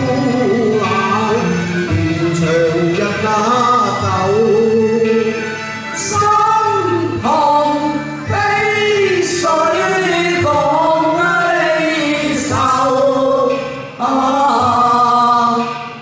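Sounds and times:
man singing opera: 0.0s - 5.4s, 6.0s - 15.7s
instrumental accompaniment: 0.0s - 16.0s
woman singing opera: 6.0s - 15.9s.

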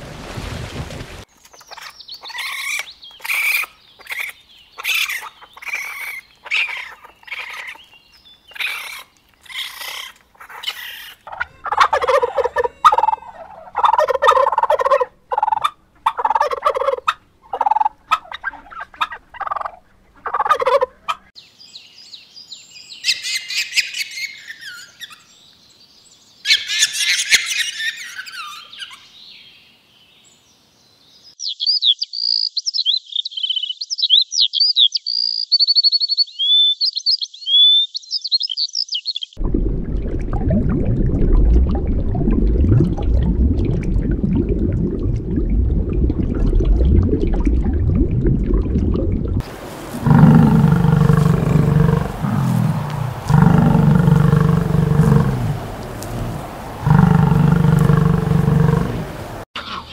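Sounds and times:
turkey gobbling: 10.5s - 21.2s
short high-pitched animal calls: 11.3s - 13.8s.

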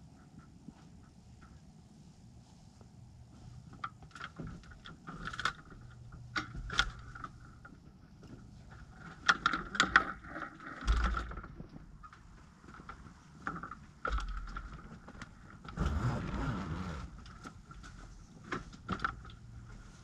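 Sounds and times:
clicks and rattles of aircraft tail: 3.6s - 15.8s, 17.1s - 19.7s.

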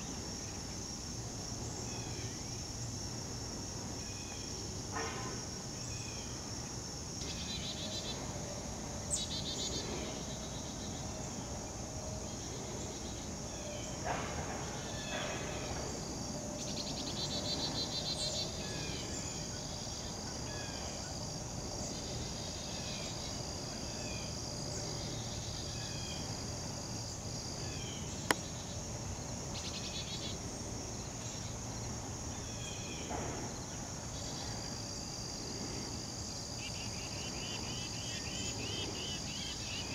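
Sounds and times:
insect chorus droning: 0.0s - 39.9s.

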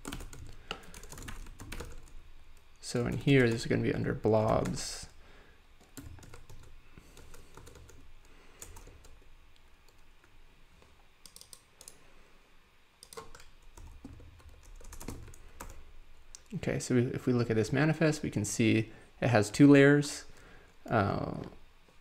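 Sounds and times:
typing on computer keyboard: 0.0s - 2.2s, 5.9s - 8.0s, 8.6s - 9.2s, 11.2s - 12.0s, 13.0s - 15.8s.

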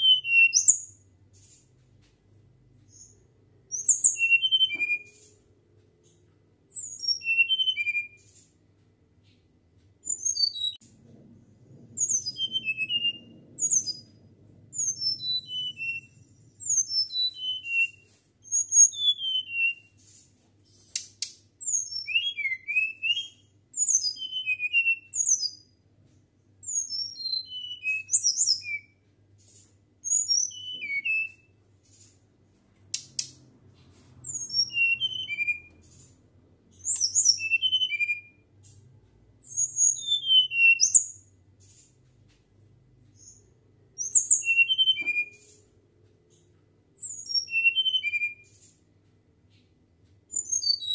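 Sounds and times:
bird whistling song: 0.0s - 1.0s, 2.9s - 5.3s, 6.7s - 8.4s, 10.0s - 10.8s, 12.0s - 20.1s, 21.6s - 25.7s, 26.6s - 29.0s, 30.0s - 31.6s, 34.2s - 36.0s, 36.7s - 38.5s, 39.4s - 41.3s, 43.2s - 45.6s, 47.0s - 48.6s, 50.3s - 50.9s.

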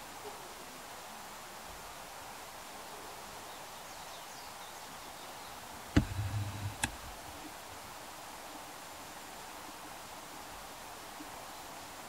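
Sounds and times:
outdoor background hiss: 0.0s - 12.0s
soft click: 6.0s - 7.2s.

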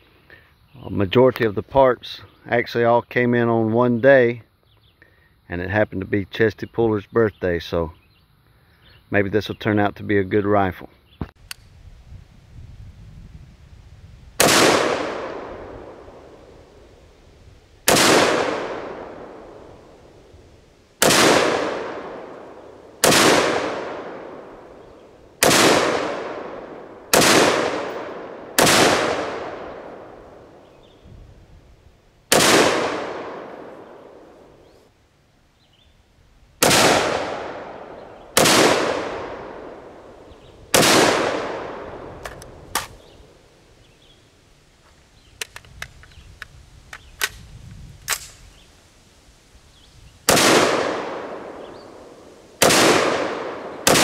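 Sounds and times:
small sharp clicks: 11.3s - 11.7s, 42.2s - 43.0s, 45.4s - 48.4s
rifle gunshots: 14.4s - 16.4s, 17.8s - 20.0s, 21.0s - 30.7s, 32.3s - 34.5s, 36.6s - 43.0s, 50.3s - 54.0s.

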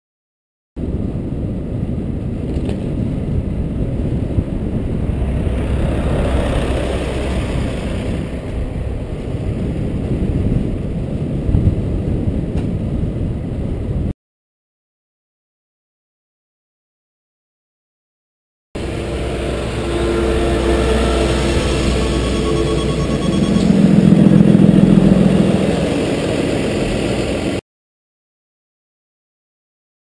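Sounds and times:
bicycle road rumble: 0.8s - 14.1s, 18.8s - 27.6s
wind buffeting microphone: 0.8s - 14.1s.

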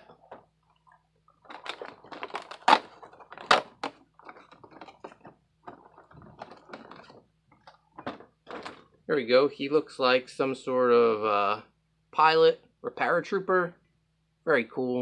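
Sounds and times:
cardboard tearing and crackling: 1.5s - 7.2s.

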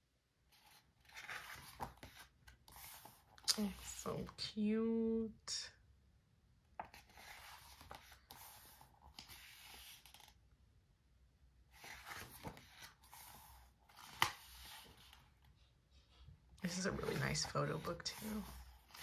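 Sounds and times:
pages turning: 0.5s - 4.4s, 6.8s - 10.4s, 11.7s - 15.6s, 16.6s - 19.0s.

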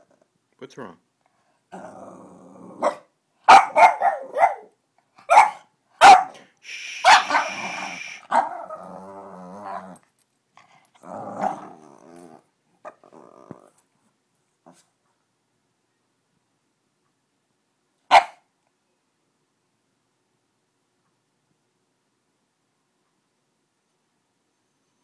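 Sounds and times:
dog growling: 1.7s - 3.0s, 7.2s - 10.0s, 10.7s - 13.8s
dog barking: 2.8s - 8.6s, 18.1s - 18.5s
dog crying: 7.0s - 8.8s.

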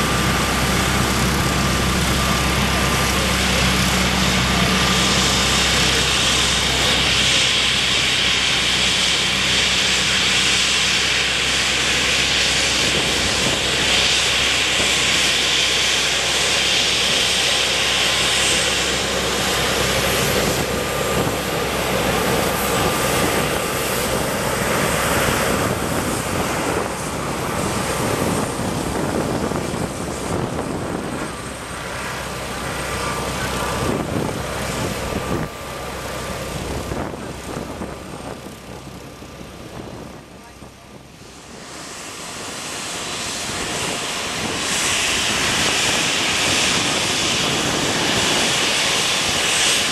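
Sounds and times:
jet engines whining while taxiing: 0.0s - 49.9s.

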